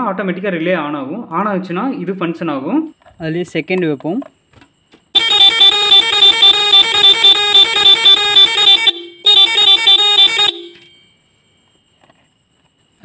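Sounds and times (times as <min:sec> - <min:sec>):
multi-tone horn pulsing: 0:05.2 - 0:10.9.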